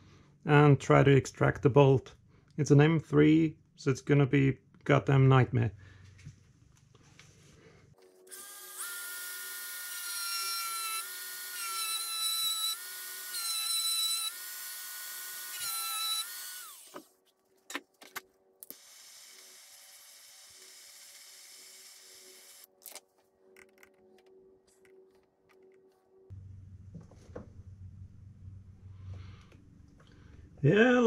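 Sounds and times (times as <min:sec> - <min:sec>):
rotary tool whining: 0:08.3 - 0:17.1.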